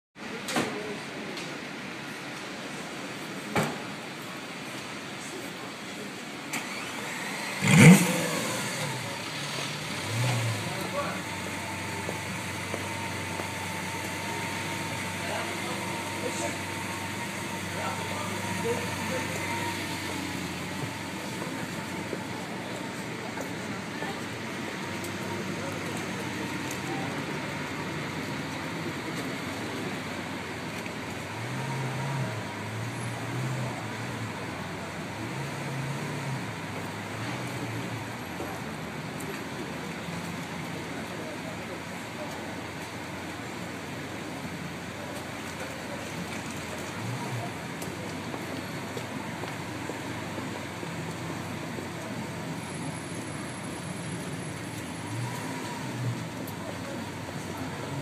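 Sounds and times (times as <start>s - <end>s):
street traffic noise: 0.2s - 58.0s
car engine idling: 6.5s - 58.0s.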